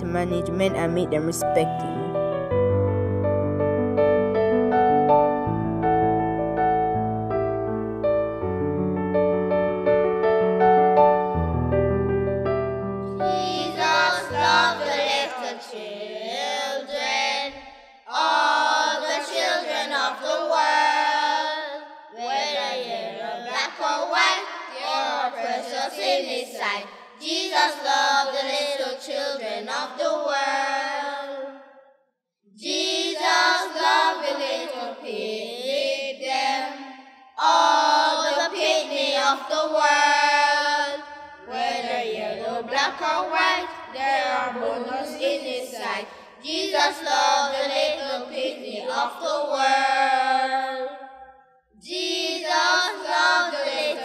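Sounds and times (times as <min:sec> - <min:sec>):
children singing: 0:13.2 - 0:31.6, 0:32.6 - 0:51.0, 0:51.8 - 0:54.0.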